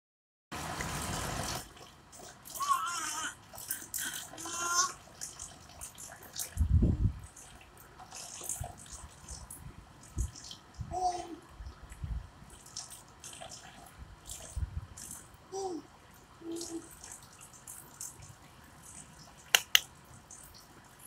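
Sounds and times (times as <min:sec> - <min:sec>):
water trickling and dripping into tub: 0:00.6 - 0:21.0
baby cooing: 0:02.6 - 0:03.4, 0:04.0 - 0:05.0, 0:10.9 - 0:11.4, 0:15.5 - 0:17.0
sharp clicks: 0:19.5 - 0:19.9.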